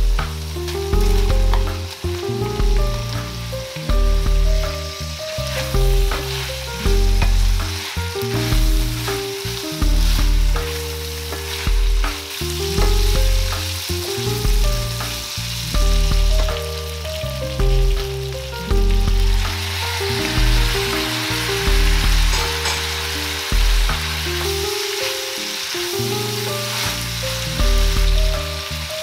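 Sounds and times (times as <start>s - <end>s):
background music with a beat: 0.0s - 29.0s
food sizzling in a frying pan: 0.0s - 29.0s
wooden spatula scraping a pan: 5.1s - 13.6s.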